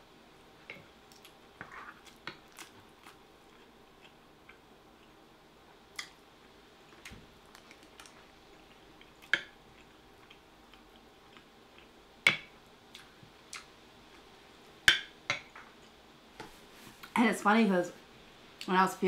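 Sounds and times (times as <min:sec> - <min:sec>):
faint chewing ticks: 0:06.9 - 0:12.0, 0:12.9 - 0:14.2.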